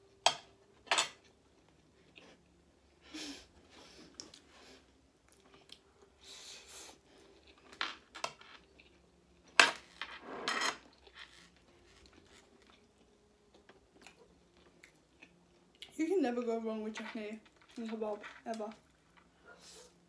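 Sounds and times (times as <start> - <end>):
dishes and cutlery clicking: 0.2 - 1.2.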